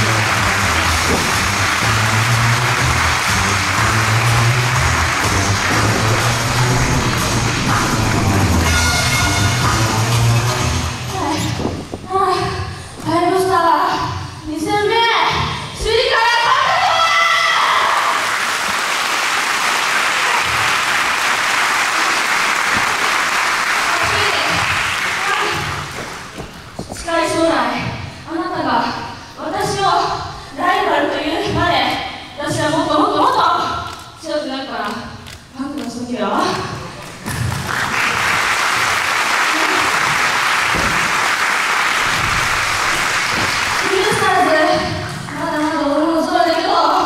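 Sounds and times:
audience clapping: 0.0 - 10.9, 17.8 - 26.8, 37.0 - 47.0.

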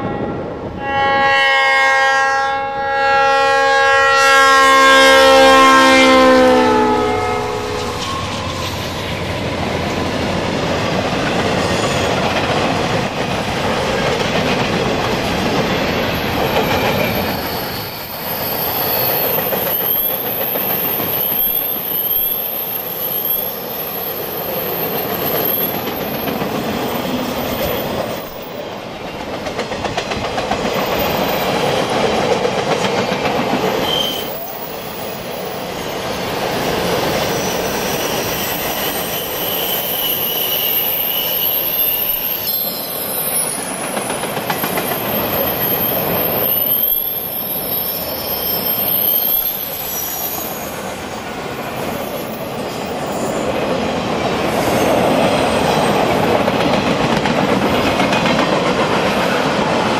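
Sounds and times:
steel wheels rumbling on rail: 2.3 - 59.9
high wheel squeal: 4.9 - 12.4, 15.6 - 28.5, 33.6 - 53.6.

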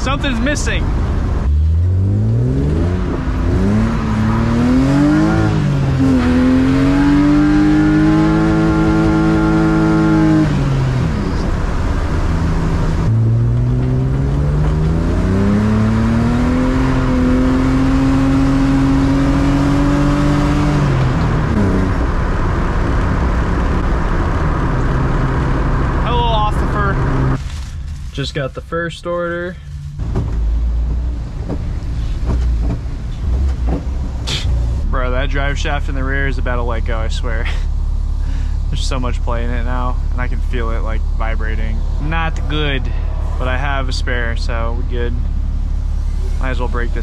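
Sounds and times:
car engine revving hard: 0.9 - 27.4, 38.2 - 47.0.

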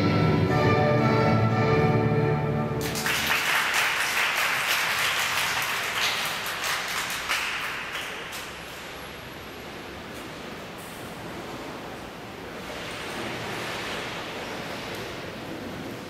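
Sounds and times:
recorded music: 0.0 - 3.0
applause: 2.8 - 8.7.

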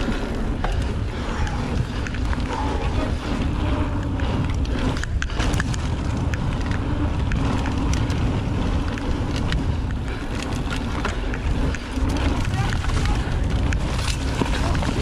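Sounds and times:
bike clicking and rattling: 0.0 - 15.0
tyres rumbling over dirt: 0.0 - 15.0
wind buffeting microphone: 0.0 - 15.0.

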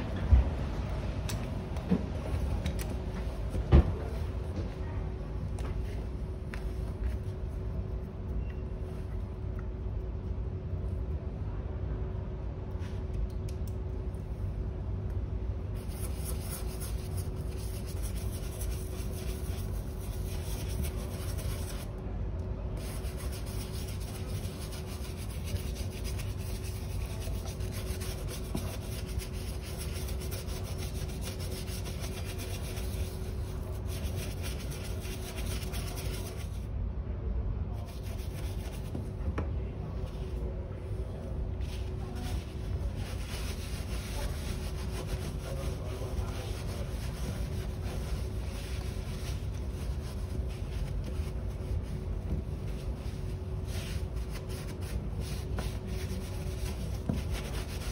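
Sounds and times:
shoe brush scrubbing leather: 15.8 - 21.9, 22.8 - 36.6, 42.2 - 51.3, 52.2 - 57.9.

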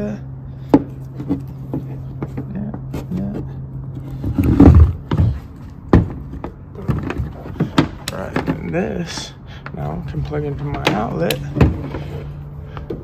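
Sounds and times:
loud rough rumble: 0.0 - 13.0.

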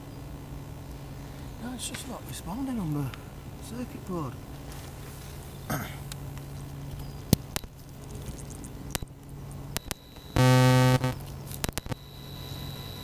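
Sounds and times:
faint steady hum: 0.0 - 13.0
buzzy electronic beep: 9.8 - 13.0.

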